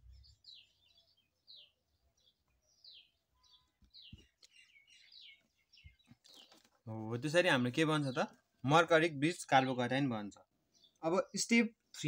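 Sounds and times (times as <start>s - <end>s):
small bird chirping: 0.0s - 7.0s.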